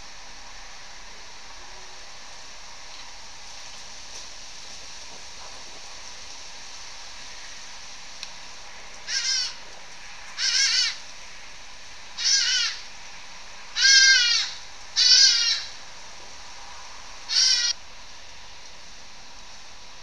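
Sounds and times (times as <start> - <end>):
steady hiss: 0.0 - 20.0
shrill animal calls: 9.0 - 9.6, 10.4 - 11.0, 12.2 - 12.9, 13.7 - 15.8, 17.3 - 17.8.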